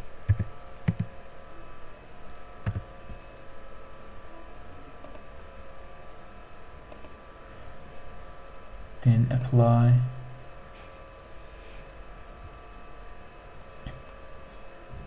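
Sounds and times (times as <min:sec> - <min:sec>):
faint steady hum: 0:00.0 - 0:15.0
keyboard keystroke clicks: 0:00.3 - 0:01.1, 0:02.6 - 0:02.8.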